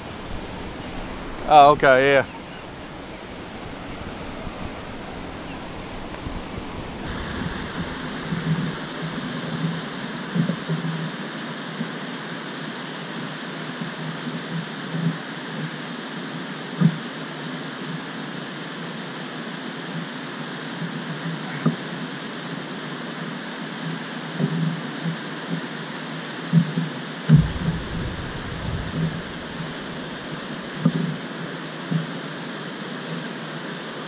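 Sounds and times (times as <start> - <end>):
low rumble: 0.0 - 9.5, 27.3 - 30.8
water rushing through dam gates: 0.0 - 10.7, 27.3 - 31.5.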